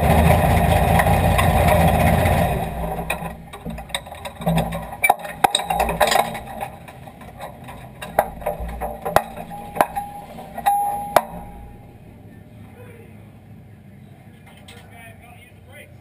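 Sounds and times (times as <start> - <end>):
sharp knocks and clicks: 0.0 - 12.1
short steady tones: 2.6 - 12.2.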